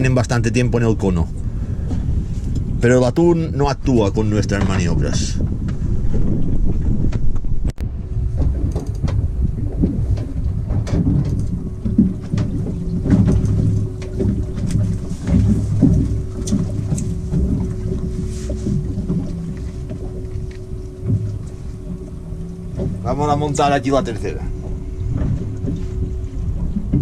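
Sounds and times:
steady hum: 0.0 - 27.0
wind rumbling on microphone: 0.0 - 27.0.

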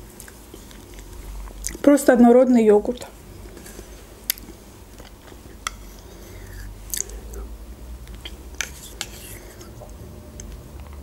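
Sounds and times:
mouth sounds eating yogurt: 4.3 - 9.9.

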